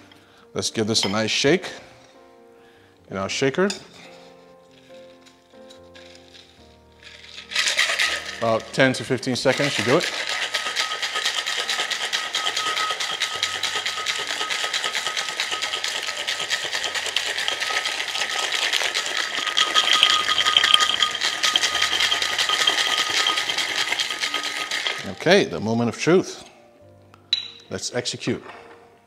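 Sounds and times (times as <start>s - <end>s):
ice rattling in cocktail shaker: 5.9s - 25.2s.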